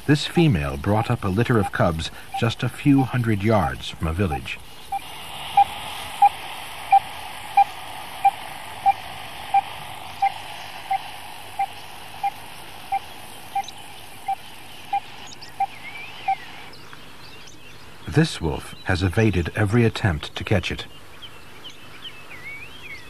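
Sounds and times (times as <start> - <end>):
static hiss: 0.0 - 21.2.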